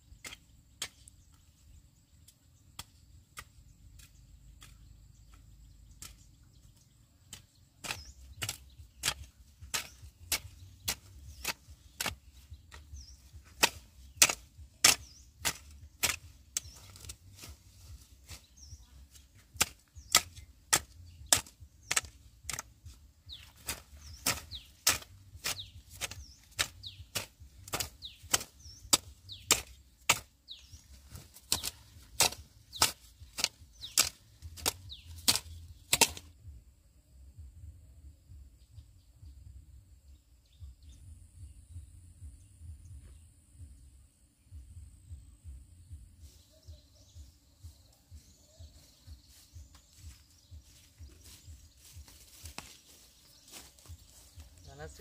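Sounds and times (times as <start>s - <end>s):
sharp chopping strikes: 7.3s - 17.6s, 18.2s - 36.4s.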